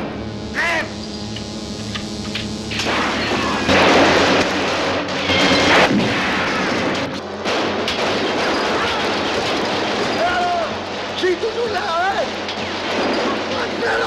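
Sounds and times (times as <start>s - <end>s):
loud blasts with crackling rush: 0.0s - 14.0s.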